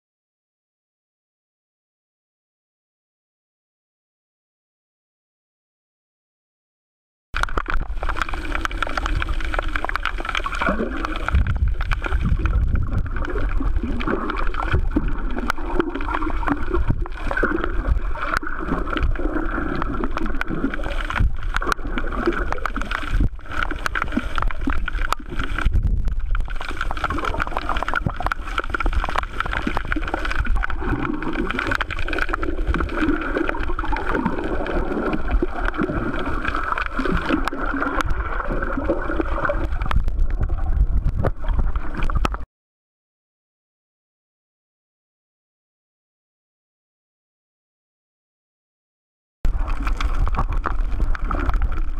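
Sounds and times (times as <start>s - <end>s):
muffled underwater gurgling: 7.4s - 42.4s, 49.5s - 51.9s.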